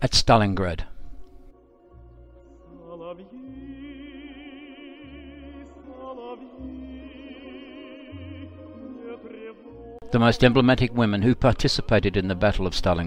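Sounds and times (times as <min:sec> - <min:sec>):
wordless solo voice singing: 0:02.6 - 0:13.0.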